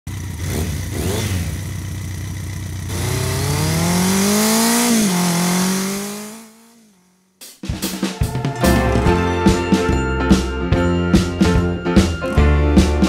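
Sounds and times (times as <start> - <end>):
engine revving: 0.1 - 7.4.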